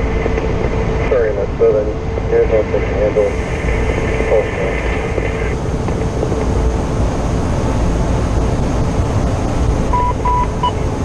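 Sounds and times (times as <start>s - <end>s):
truck engine rumble in cab: 0.0s - 11.0s
short beeps: 9.9s - 10.8s.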